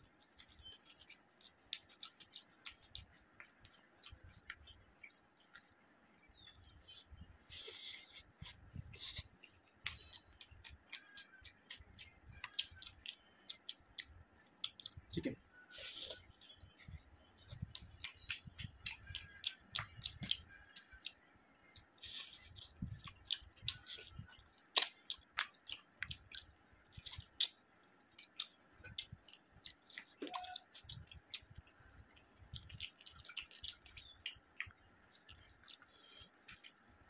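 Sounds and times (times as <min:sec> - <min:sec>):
chewing food: 0:00.0 - 0:37.0
wet mouth clicks and lip smacks: 0:00.4 - 0:06.3, 0:17.5 - 0:21.2, 0:21.8 - 0:36.8.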